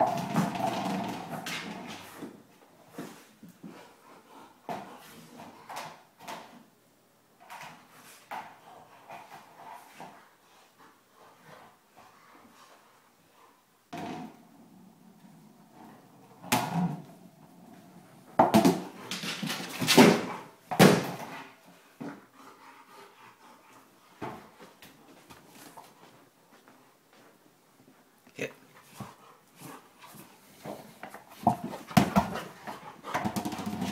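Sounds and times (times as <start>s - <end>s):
ball bumping and scraping: 0.0s - 4.0s, 4.6s - 6.7s, 13.9s - 22.4s, 28.8s - 33.9s.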